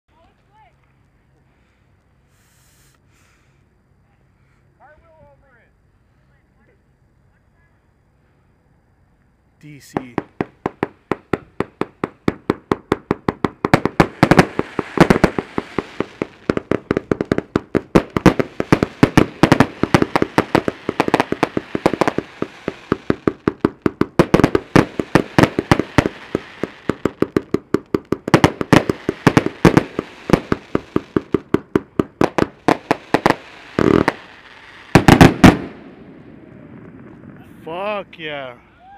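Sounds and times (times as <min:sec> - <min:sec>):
hiss of firework bursts: 0:01.4 - 0:04.8, 0:09.7 - 0:35.9
firework cake shots: 0:09.6 - 0:35.7.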